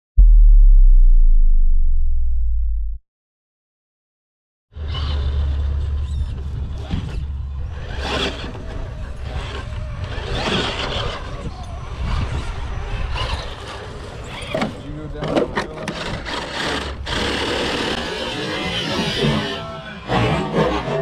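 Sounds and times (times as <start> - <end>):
steady low rumble: 0.2 - 3.0
tires scrabbling over rocks: 4.8 - 19.6.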